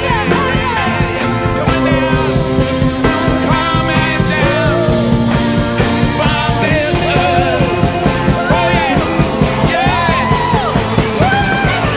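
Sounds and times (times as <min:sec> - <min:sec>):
drums: 0:00.0 - 0:11.9
electric guitars: 0:00.0 - 0:11.9
person singing lead vocals: 0:00.0 - 0:11.9.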